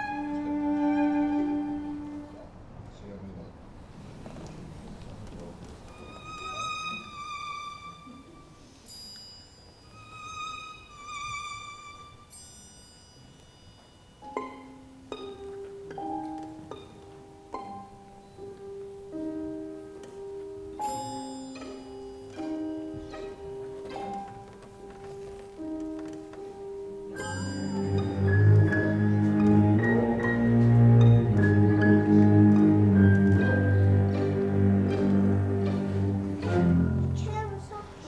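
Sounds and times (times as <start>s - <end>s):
violin with vibrato: 0.0s - 2.4s, 6.0s - 8.4s, 10.0s - 12.3s
slow ringing struck notes: 20.8s - 23.4s, 27.1s - 37.2s.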